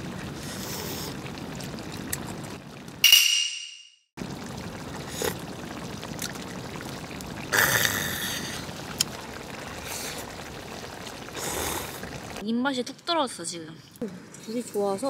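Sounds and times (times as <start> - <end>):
rain falling on a tent: 0.0 - 3.0, 4.2 - 12.4.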